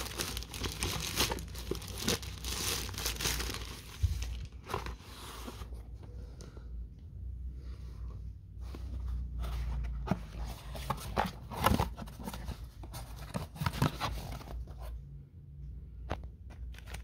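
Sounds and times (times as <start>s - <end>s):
cardboard box being opened: 9.3s - 14.7s.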